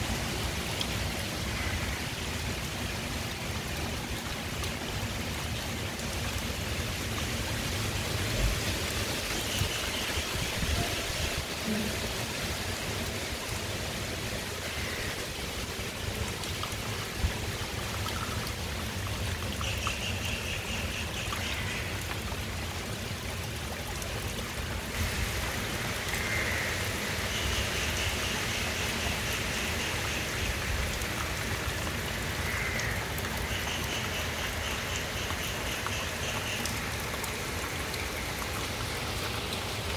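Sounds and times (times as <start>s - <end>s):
heavy rain pouring on leaves: 0.0s - 39.9s.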